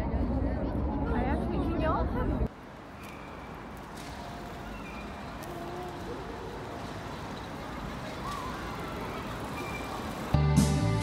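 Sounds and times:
distant traffic hum: 2.4s - 10.8s.

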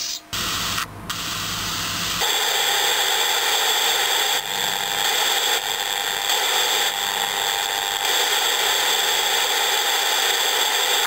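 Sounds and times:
radio speaker rushing hiss: 0.0s - 4.4s.

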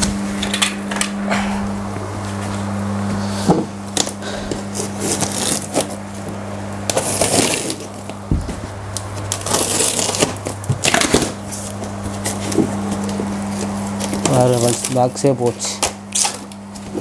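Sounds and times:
steady low hum: 0.0s - 17.0s
packing tape tearing: 3.9s - 8.2s, 8.9s - 17.0s
foam scraping and creaking: 9.3s - 10.4s.

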